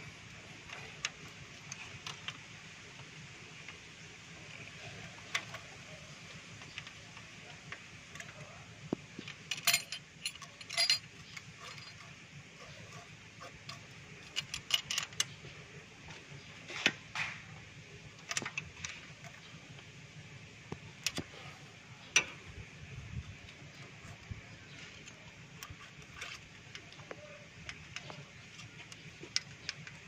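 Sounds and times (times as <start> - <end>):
metal tools clicking and clinking: 9.2 - 15.4, 23.7 - 30.0.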